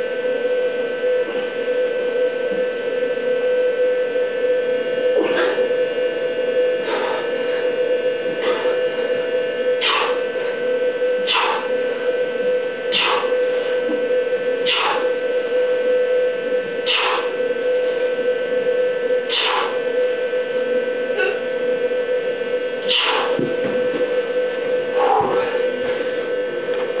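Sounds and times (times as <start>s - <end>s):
steady electrical hum: 0.0s - 27.0s.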